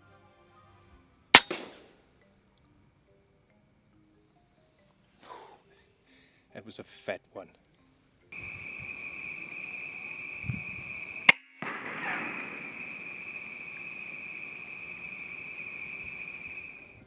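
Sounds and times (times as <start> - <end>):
crickets calling: 0.0 - 17.0
air rifle shot: 1.4 - 1.9, 11.2 - 15.0.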